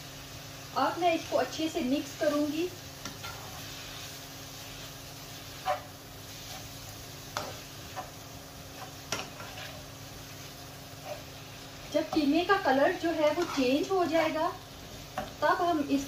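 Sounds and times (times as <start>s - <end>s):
meat and onions sizzling in pan: 0.0s - 16.0s
spatula scraping and tapping pan: 3.0s - 3.8s, 5.6s - 9.8s, 13.3s - 13.9s, 15.1s - 15.4s.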